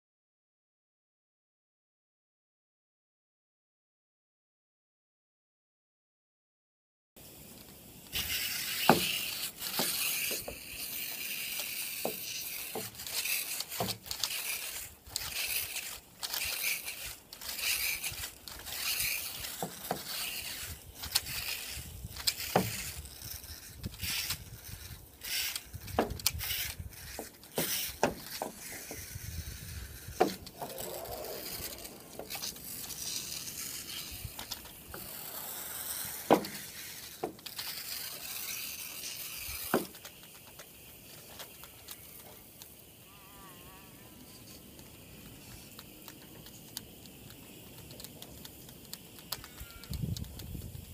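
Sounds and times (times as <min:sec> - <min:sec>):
water hiss: 0:07.2 - 0:50.9
brush scrubbing glass: 0:07.8 - 0:42.7
sharp squeaks: 0:08.2 - 0:50.7.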